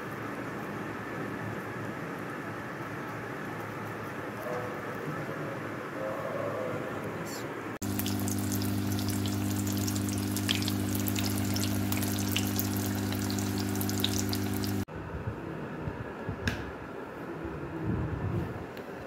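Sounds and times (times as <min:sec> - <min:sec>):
steady low hum: 0:05.5 - 0:15.7
hot oil sizzling and popping: 0:07.8 - 0:14.9.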